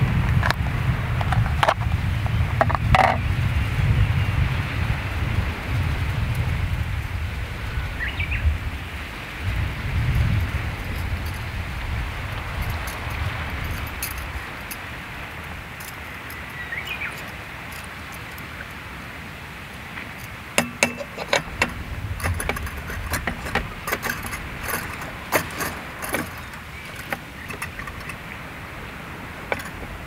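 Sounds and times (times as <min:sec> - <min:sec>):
steady background hiss: 0:04.5 - 0:30.0
light metallic clicks and clinks: 0:10.0 - 0:18.8, 0:20.0 - 0:28.4, 0:29.4 - 0:30.0.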